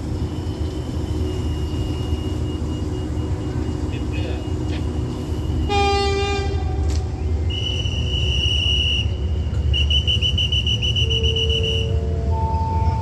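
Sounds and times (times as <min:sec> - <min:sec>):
diesel train engine rumble: 0:00.0 - 0:13.0
train horn toot: 0:05.5 - 0:09.2
hand whistle blasts: 0:07.4 - 0:12.0.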